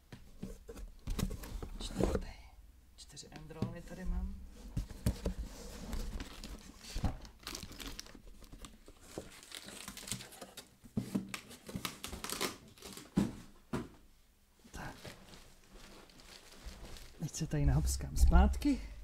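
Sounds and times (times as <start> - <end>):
cardboard and paper crinkling: 4.7 - 13.4, 14.8 - 17.4.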